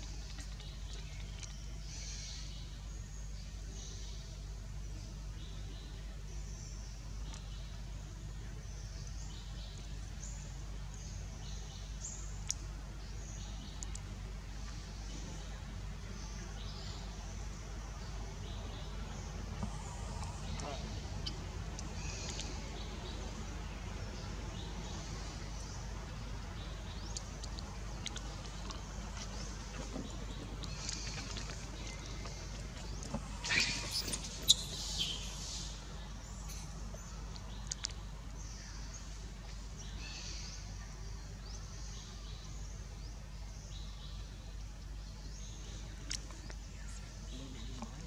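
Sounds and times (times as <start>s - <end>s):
low rumble and hiss: 0.0s - 48.0s
steady low hum: 0.0s - 48.0s.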